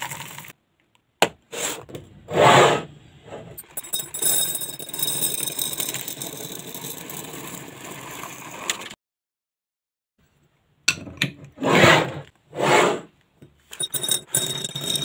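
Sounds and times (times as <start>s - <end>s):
dried beans pouring into glass bottle: 0.0s - 0.5s, 3.8s - 8.8s.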